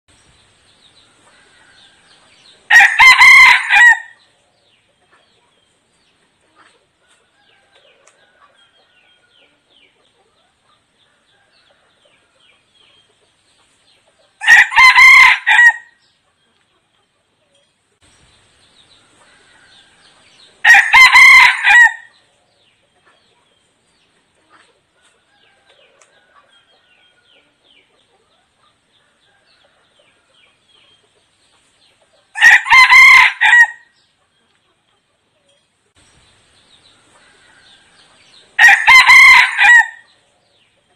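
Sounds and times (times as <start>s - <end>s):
rooster crowing: 1.3s - 4.2s, 14.4s - 16.0s, 19.2s - 22.1s, 32.4s - 33.9s, 37.2s - 40.1s.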